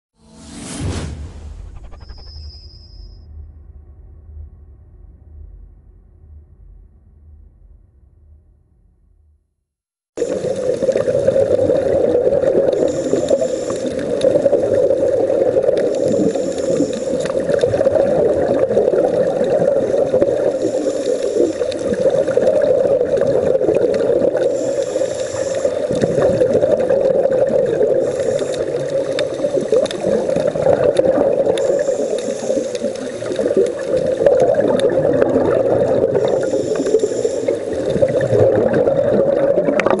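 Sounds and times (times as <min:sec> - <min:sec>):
muffled underwater rushing: 0:10.2 - 0:40.0.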